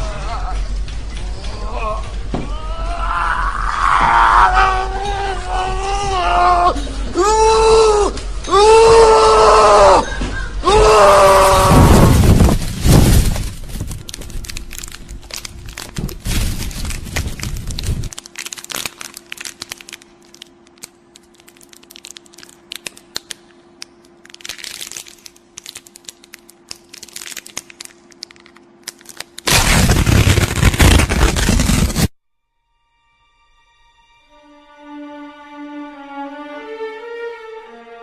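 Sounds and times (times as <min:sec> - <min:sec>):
cracking and crunching clicks: 0:12.8 - 0:32.1
loud burst of sound: 0:29.5 - 0:32.1.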